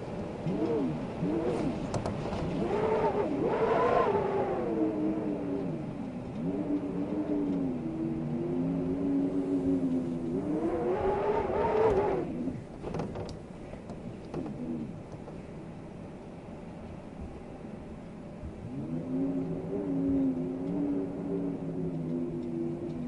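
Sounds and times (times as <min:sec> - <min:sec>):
wind howling and whistling: 0:00.0 - 0:23.0
faint clicks: 0:21.8 - 0:23.0.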